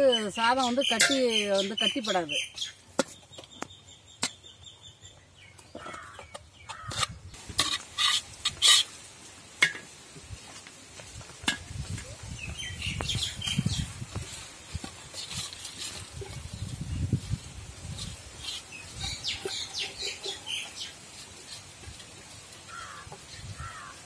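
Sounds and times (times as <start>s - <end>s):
metal spoon scraping pots: 0.1s - 2.5s, 5.6s - 9.9s, 14.7s - 23.9s.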